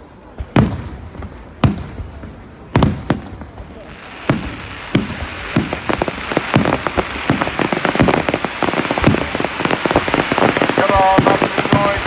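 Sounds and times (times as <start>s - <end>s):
firework crackle: 0.0s - 12.0s
firework shells bursting: 3.9s - 12.0s.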